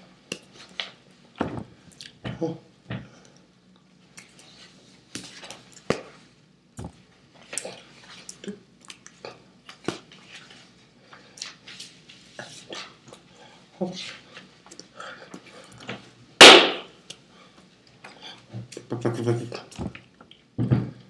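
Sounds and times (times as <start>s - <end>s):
hands slapping and clapping: 16.4s - 16.9s.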